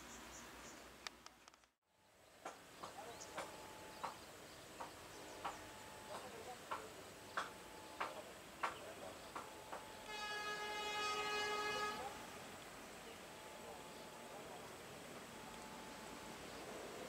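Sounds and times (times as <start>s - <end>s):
faint regular ticking: 2.4s - 10.2s.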